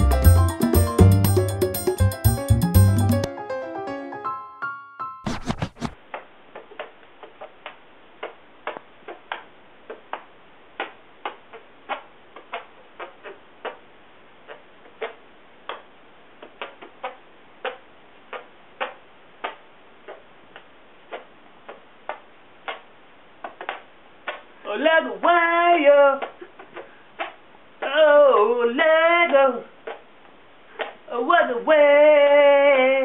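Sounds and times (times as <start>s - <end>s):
hand-fart pops: 6.6s - 13.8s, 14.5s - 24.5s.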